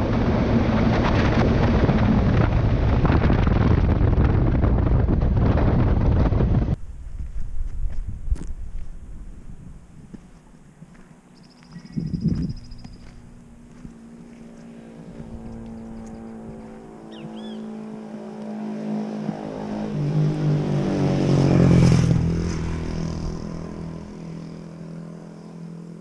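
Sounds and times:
vehicle passing by: 9.0 - 26.0.

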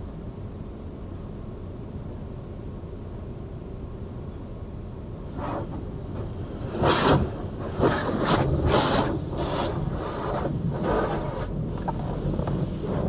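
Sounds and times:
low rumble: 5.1 - 13.0
water spray hitting car: 5.3 - 13.0.

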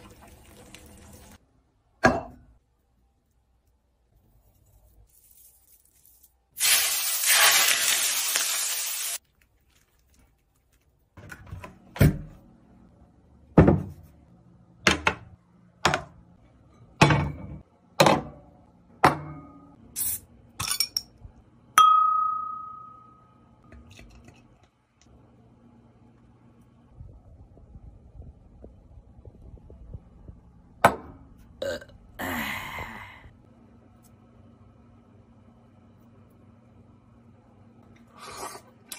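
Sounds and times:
hot oil sizzling: 0.0 - 1.4, 6.6 - 9.2
glass ringing tone: 21.8 - 23.5.

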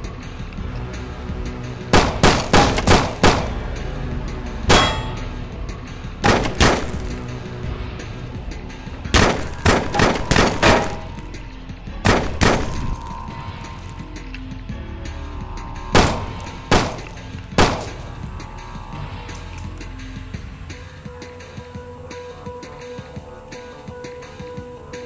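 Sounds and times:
background music: 0.0 - 25.0
gunshots: 1.9 - 3.7, 4.7 - 5.2, 6.2 - 7.3, 9.2 - 11.3, 12.0 - 13.1, 16.0 - 18.2.

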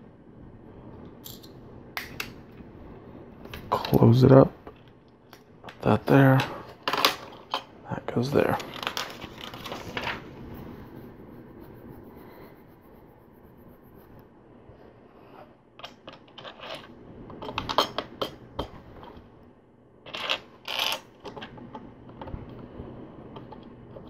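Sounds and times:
plastic bricks clicking and clattering: 8.5 - 10.2, 20.1 - 21.7
plastic bricks rattling: 8.5 - 10.2.

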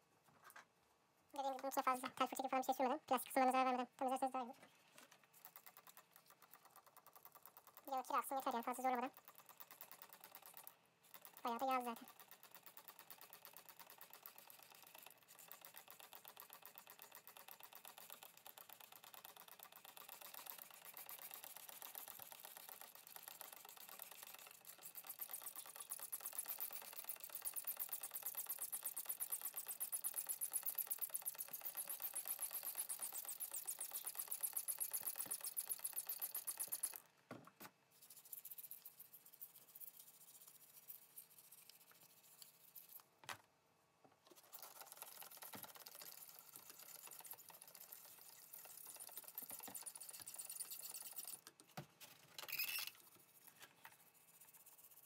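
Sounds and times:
brush scrubbing metal: 19.9 - 37.0.

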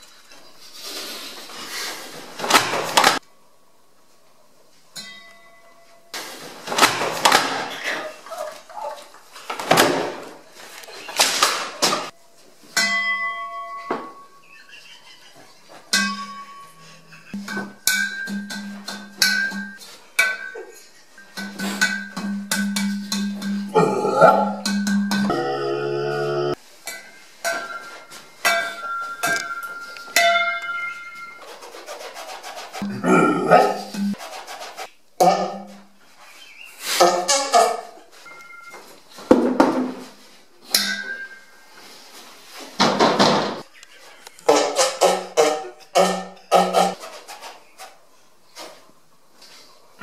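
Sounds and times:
metal vase ringing: 12.8 - 14.5, 15.9 - 20.6, 27.0 - 31.4
buzzing tone through metal horn: 25.2 - 26.6, 32.8 - 34.2.

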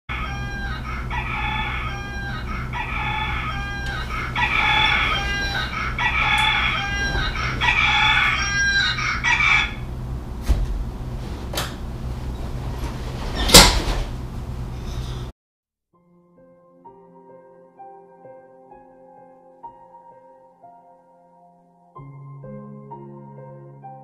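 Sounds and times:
steady low hum: 0.1 - 15.3.

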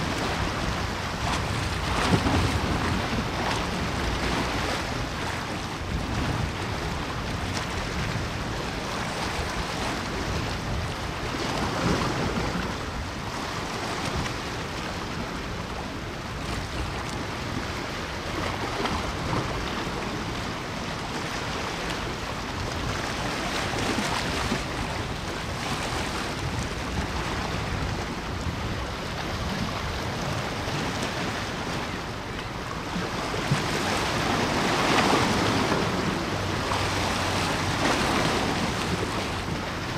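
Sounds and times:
waves washing in: 0.0 - 39.9
wind noise on microphone: 0.0 - 39.9.

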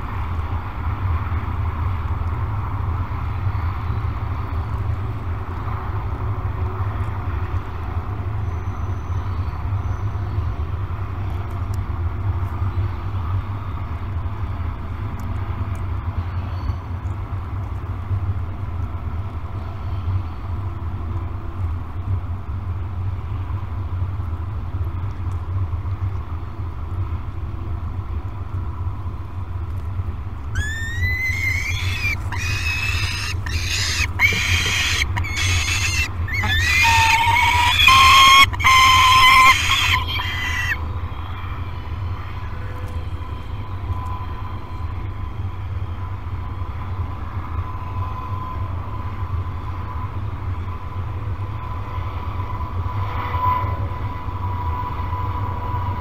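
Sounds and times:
young falcon begging calls: 30.6 - 40.8.

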